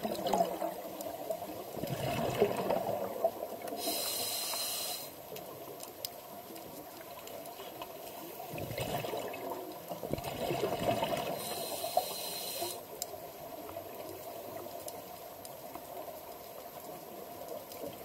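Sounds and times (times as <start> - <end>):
diver's exhaled bubbles: 1.8 - 3.3, 8.5 - 9.5, 10.1 - 11.4
hissing regulator inhalation: 3.8 - 5.2, 11.4 - 12.8.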